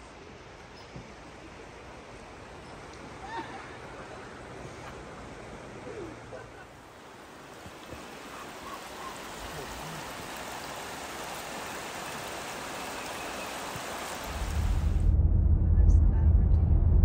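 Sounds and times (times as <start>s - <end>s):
stream flowing over stones: 6.8s - 15.0s.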